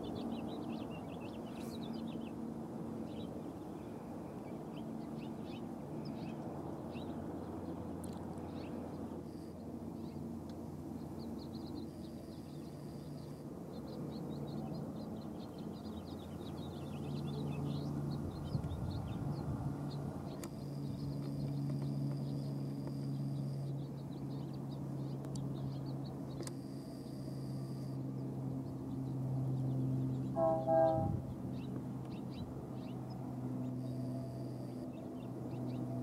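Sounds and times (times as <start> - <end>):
small birds chirping: 0.0 - 10.3, 10.9 - 27.2
locomotive diesel engines droning: 0.0 - 36.0.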